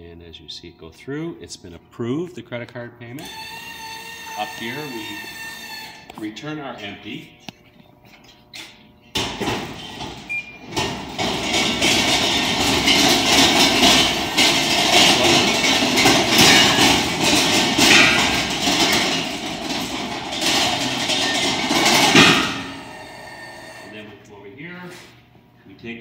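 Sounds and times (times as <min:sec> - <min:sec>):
machine rattling and clanking: 0:09.2 - 0:23.9.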